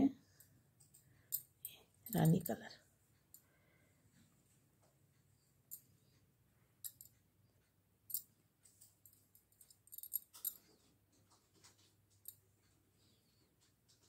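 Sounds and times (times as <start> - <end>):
knitting needles clicking: 0.8 - 2.7, 6.8 - 7.3, 8.1 - 12.5.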